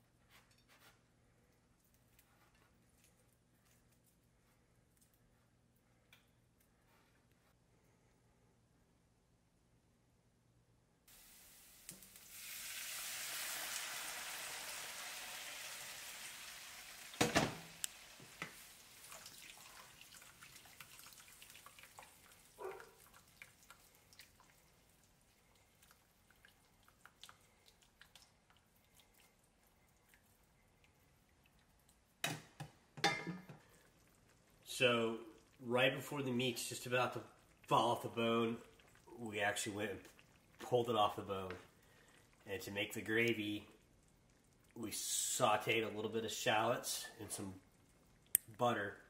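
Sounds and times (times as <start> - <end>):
pan simmering with pops: 11.0 - 48.9
liquid sizzling in a pan: 11.1 - 48.4.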